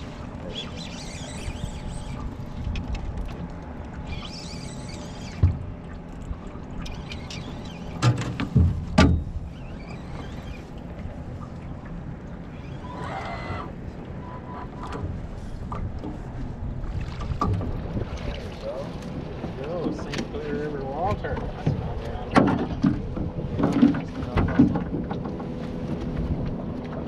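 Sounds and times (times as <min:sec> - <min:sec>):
water lapping against boat: 0:00.0 - 0:27.0.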